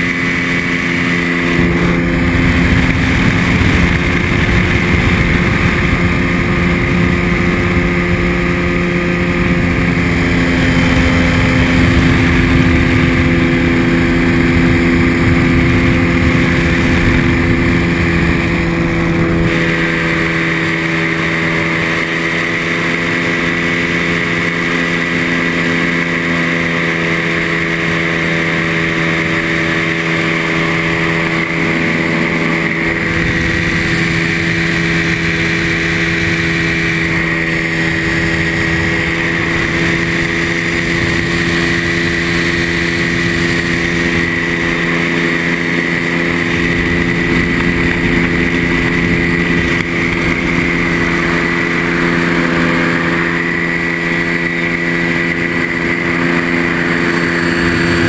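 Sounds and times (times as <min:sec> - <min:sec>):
aircraft engine and propeller: 0:00.0 - 0:58.0
wind rushing: 0:00.3 - 0:24.6.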